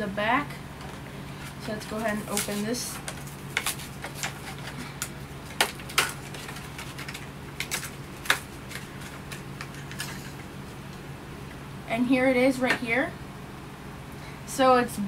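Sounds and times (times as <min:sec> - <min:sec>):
plastic packaging crackling: 0:01.3 - 0:10.6.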